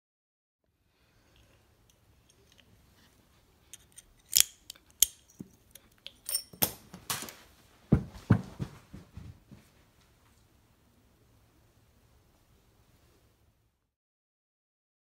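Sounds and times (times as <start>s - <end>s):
heavy thuds: 7.9s - 9.7s.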